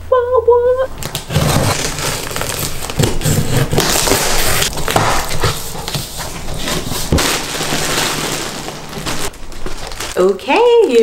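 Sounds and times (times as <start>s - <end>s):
cardboard box flaps tearing: 1.0s - 10.2s.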